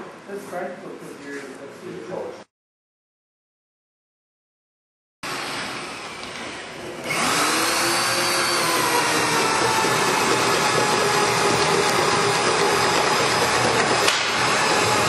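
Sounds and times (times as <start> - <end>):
electric drill boring into wood: 5.3 - 15.0.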